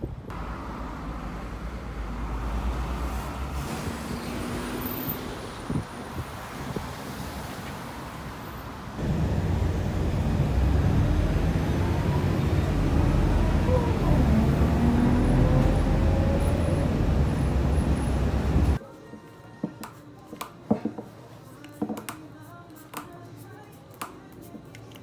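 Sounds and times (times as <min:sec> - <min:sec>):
bus engine and road rumble: 0:00.0 - 0:18.8
street noise: 0:00.0 - 0:25.0.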